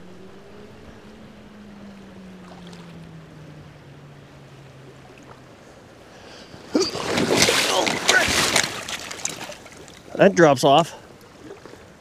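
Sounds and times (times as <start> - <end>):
faint low hum: 0.0 - 8.1
creek flowing: 0.0 - 12.0.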